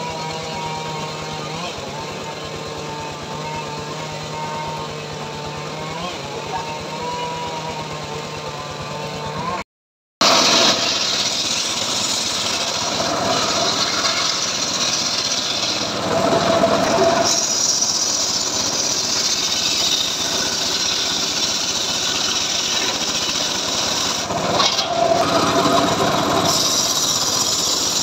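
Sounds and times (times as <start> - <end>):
engine running under load: 0.0 - 9.6, 10.2 - 28.0
circular saw ripping log: 10.2 - 28.0.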